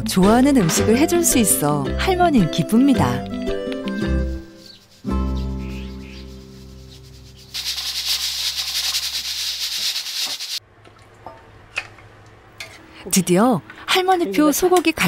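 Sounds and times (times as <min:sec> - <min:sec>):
food crackling in a pan: 0:07.4 - 0:10.6.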